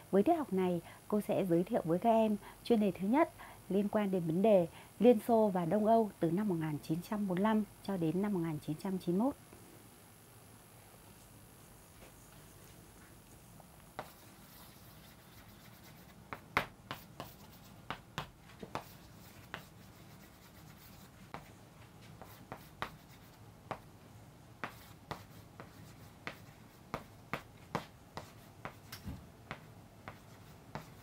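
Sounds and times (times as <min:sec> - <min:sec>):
chalk tapping and scraping on chalkboard: 0:12.0 - 0:23.9, 0:24.6 - 0:31.0.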